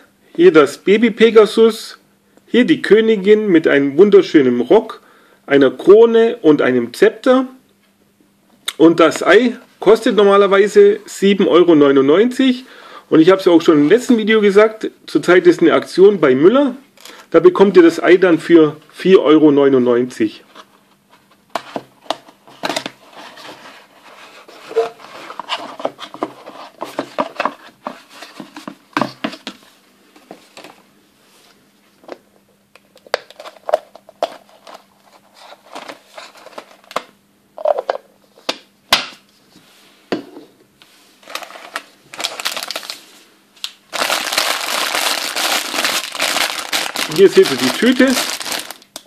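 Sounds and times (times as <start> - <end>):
cardboard box rustling and scraping: 23.1 - 29.2
plastic bag crinkling: 41.2 - 43.1, 43.9 - 49.0.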